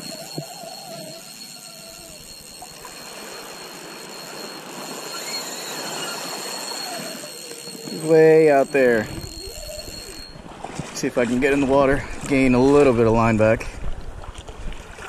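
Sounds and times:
fishing reel drag whining: 0.0 - 10.6.

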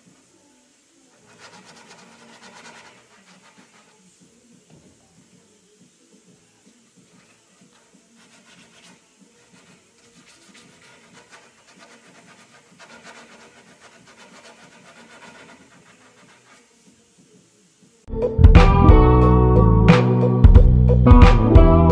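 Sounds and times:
sandpaper rasping on wood: 1.1 - 4.1, 7.1 - 16.8.

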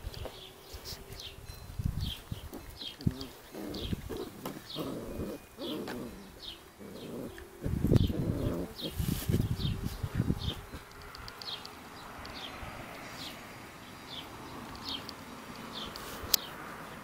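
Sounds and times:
small bird chirping: 0.0 - 16.6
puppies growling and grunting: 2.8 - 9.1.

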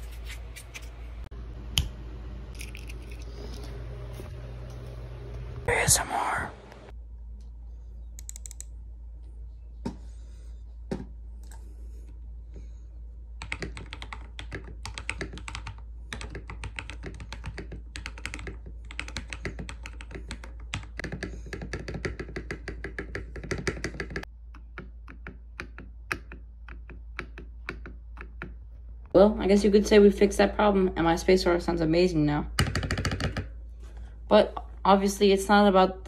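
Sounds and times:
mechanical keyboard typing: 13.4 - 24.2.

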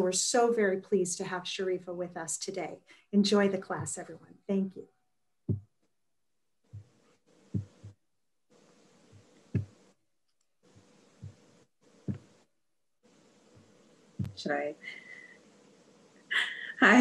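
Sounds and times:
soft thumps: 5.5 - 5.8, 6.7 - 8.0, 9.1 - 9.8, 10.8 - 12.4, 13.6 - 14.4
faint hiss: 10.6 - 17.0.

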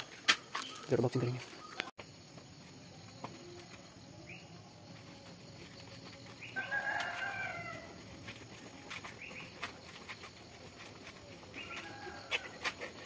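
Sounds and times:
rooster crowing: 6.4 - 8.2, 11.6 - 12.7.

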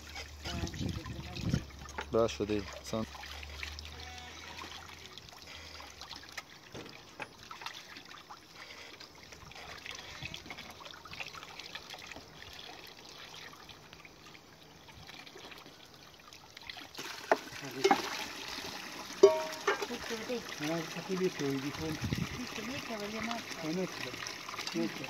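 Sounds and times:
water splashing into pot: 16.4 - 25.0
water running from tap: 16.7 - 25.0.

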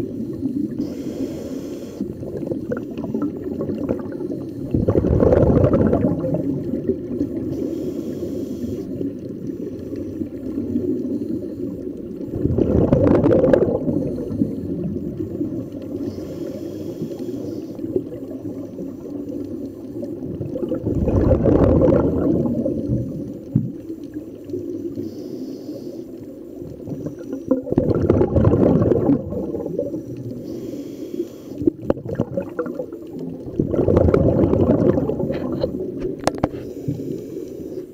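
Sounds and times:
muffled water rush: 0.0 - 37.9
diver's exhaled bubbles: 2.1 - 7.8, 12.3 - 16.3, 20.1 - 23.9, 26.7 - 30.6, 31.6 - 37.1.

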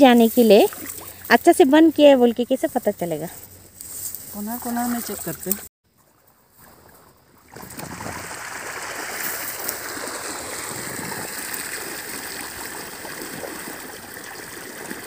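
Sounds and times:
water running out of drain: 7.5 - 15.0.

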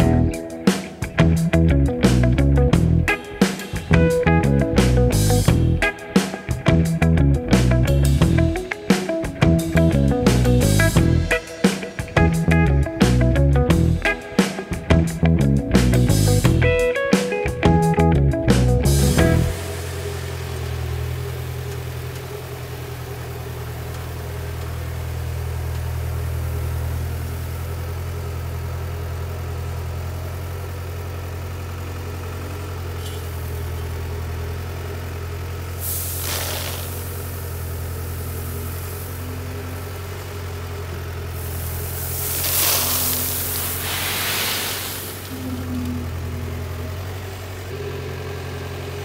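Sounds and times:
diesel engine humming: 0.0 - 49.0
hissing noise: 19.4 - 24.1, 35.8 - 39.6, 41.3 - 47.8.

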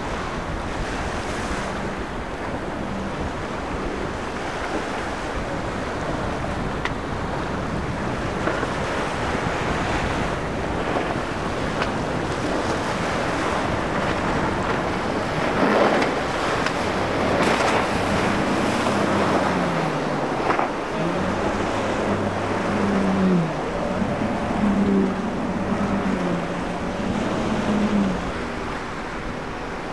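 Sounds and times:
breaking surf: 0.0 - 29.9
outboard motors: 0.0 - 29.9
wind on microphone: 0.0 - 29.9.

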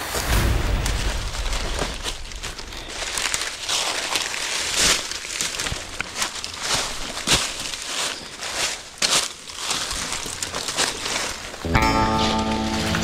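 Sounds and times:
footsteps through dry leaves: 0.0 - 13.0.

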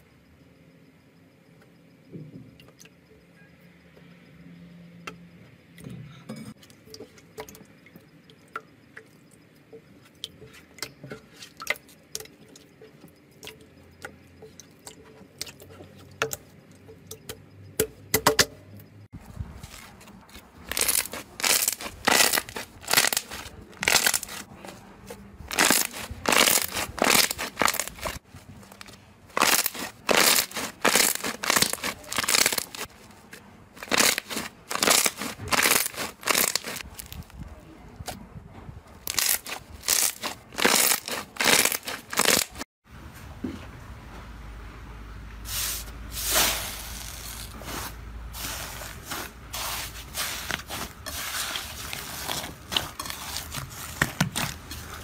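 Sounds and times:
slime crackling bursts: 20.6 - 24.5, 25.4 - 28.2, 29.3 - 32.9, 33.8 - 37.2, 39.1 - 42.6.

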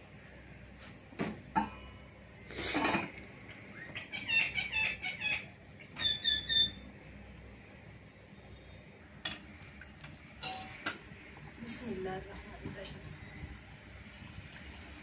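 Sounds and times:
small birds chirping: 3.5 - 6.9.

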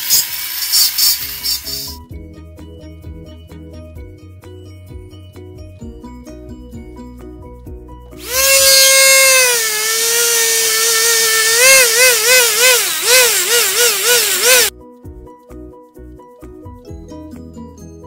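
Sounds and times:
rotary tool whining into wood: 0.0 - 2.0, 8.2 - 14.7.

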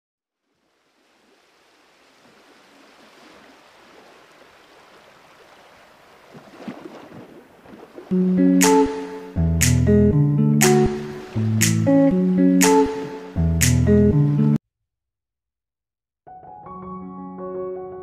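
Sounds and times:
music with plucked notes: 8.1 - 14.6.

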